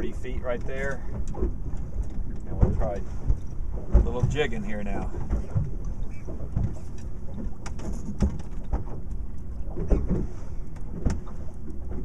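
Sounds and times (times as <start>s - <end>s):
knocks and clicks from boat: 0.0s - 12.0s
wind rumbling on microphone: 0.0s - 12.0s.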